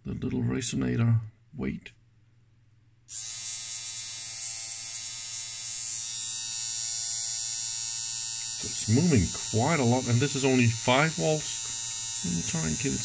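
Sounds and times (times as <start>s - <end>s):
mechanical vibrator buzzing: 3.1s - 13.0s.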